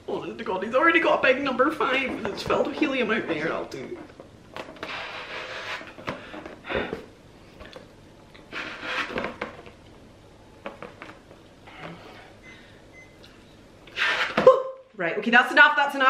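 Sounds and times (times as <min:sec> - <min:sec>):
balloon handling: 0:01.9 - 0:07.1, 0:08.5 - 0:09.8.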